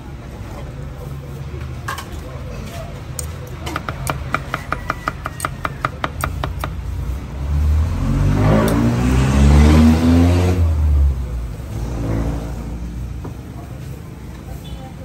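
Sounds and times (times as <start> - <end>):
cleaver knocking on wooden block: 3.6 - 6.8
vehicle driving past revving: 7.2 - 13.2.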